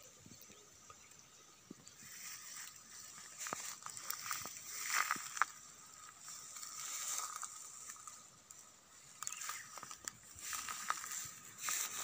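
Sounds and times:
footsteps through dry grass: 2.0 - 12.0
brittle stems crackling: 2.1 - 12.0.

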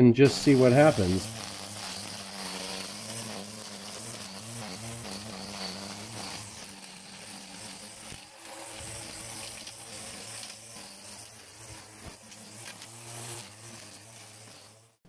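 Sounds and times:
string trimmer motor hum: 0.2 - 15.0.

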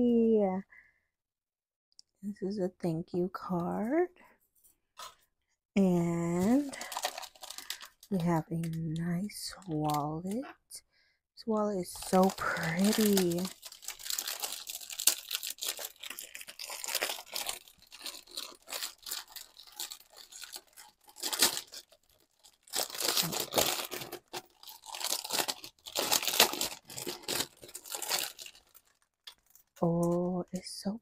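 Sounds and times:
packaging tearing and crinkling: 6.4 - 8.8, 11.9 - 29.8.

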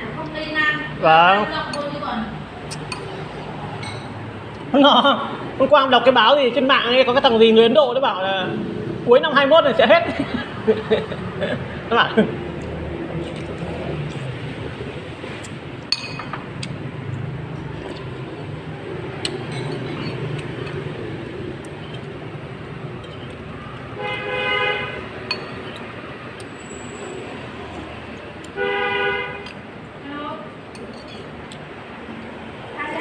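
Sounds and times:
street traffic hum: 0.0 - 33.0
vehicle horn honking: 23.9 - 25.2, 28.6 - 29.5.

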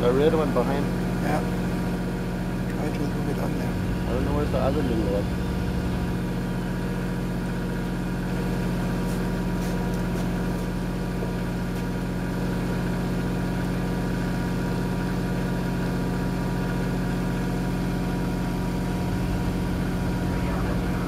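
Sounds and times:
diesel truck engine idling: 2.2 - 9.0, 16.5 - 21.0.

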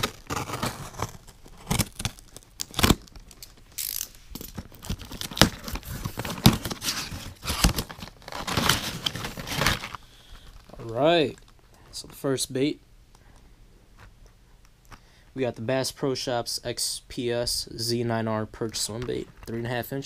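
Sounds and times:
cardboard tearing and crinkling: 0.0 - 10.0.

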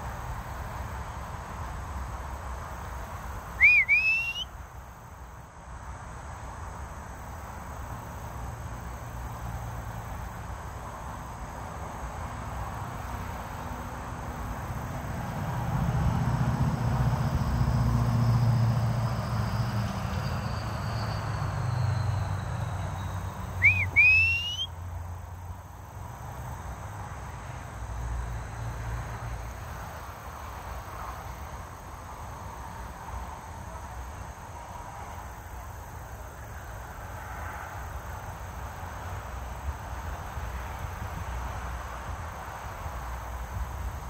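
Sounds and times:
insect drone: 0.0 - 44.0
short rising whistles: 3.6 - 4.5, 19.1 - 24.8.

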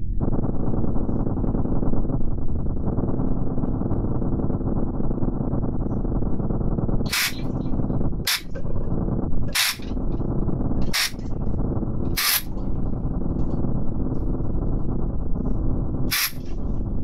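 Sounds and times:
low electronic drone: 0.0 - 17.0
hissy electronic noise bursts: 7.1 - 7.7, 8.3 - 10.2, 10.8 - 11.3, 12.0 - 12.5, 16.0 - 16.6.

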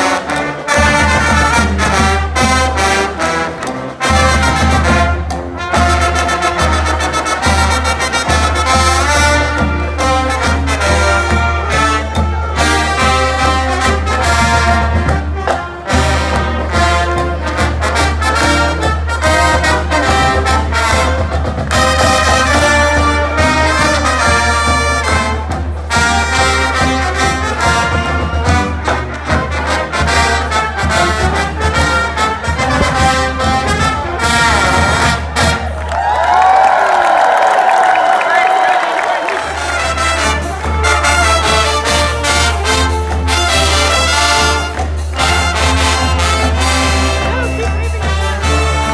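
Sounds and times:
trumpets and trombones playing: 0.0 - 36.3, 37.9 - 48.9.

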